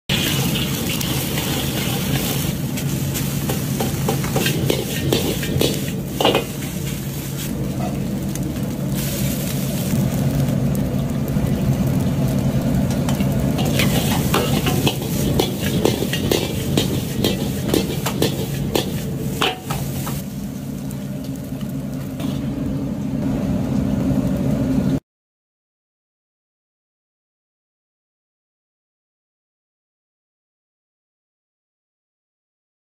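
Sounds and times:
metal ladle scraping a pan: 0.1 - 8.0, 13.6 - 20.2
rice sizzling in a wok: 0.1 - 24.8.

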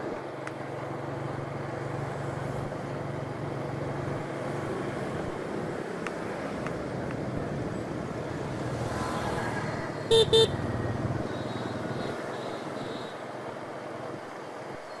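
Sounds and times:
scooter engine and road noise: 0.0 - 15.0
horn beeps: 10.1 - 13.0.

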